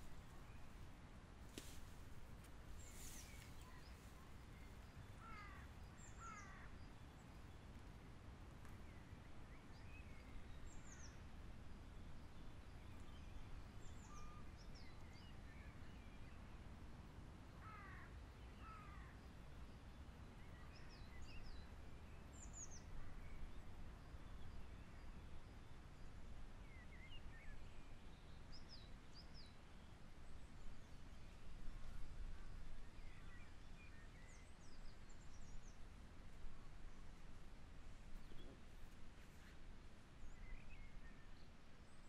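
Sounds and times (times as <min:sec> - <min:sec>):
birds calling faintly: 0:00.0 - 0:08.0
brief rustle: 0:01.4 - 0:03.7.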